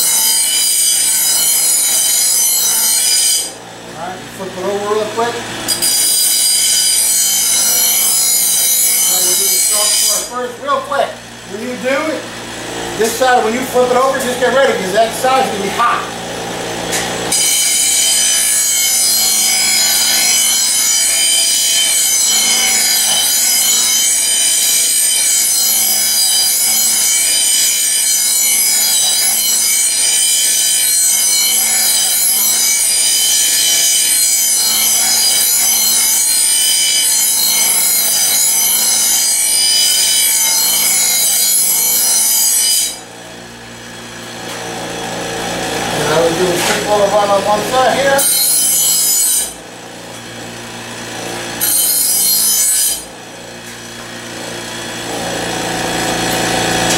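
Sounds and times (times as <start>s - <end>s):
grinder grinding steel blade: 0.0s - 56.9s
grinder motor running free: 16.1s - 43.0s, 44.0s - 56.9s.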